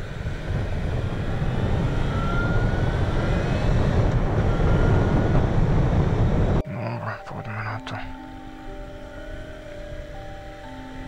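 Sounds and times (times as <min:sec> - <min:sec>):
motorcycle engine running: 0:00.0 - 0:06.6
wind rush on microphone: 0:00.0 - 0:06.6.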